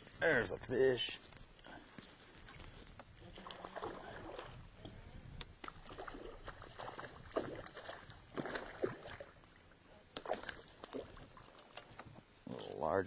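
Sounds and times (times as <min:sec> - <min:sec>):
fish splashing in water: 0:03.3 - 0:04.6, 0:05.6 - 0:12.0.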